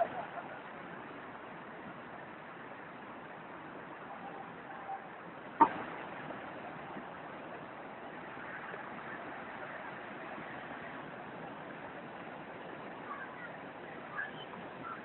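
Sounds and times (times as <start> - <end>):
river rushing over rocks: 0.0 - 15.0
waterfall: 0.0 - 15.0.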